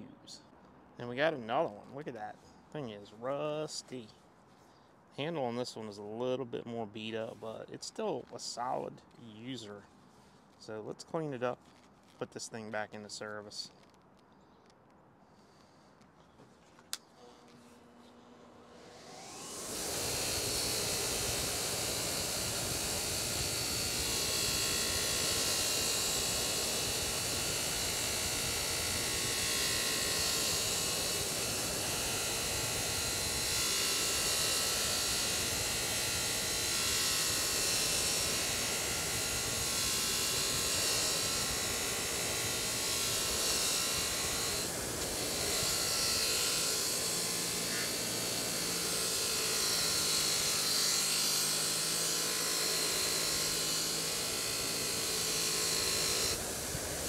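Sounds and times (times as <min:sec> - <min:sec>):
bench grinder motor whir: 0:17.0 - 0:57.0.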